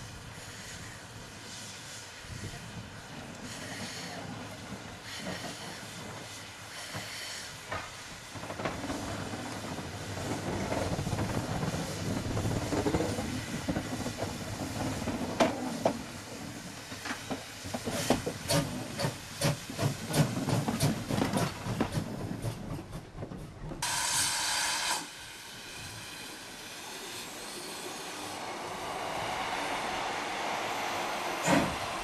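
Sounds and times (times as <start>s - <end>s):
steam locomotive hissing: 0.0s - 32.0s
short steam whistle blast: 23.8s - 32.0s.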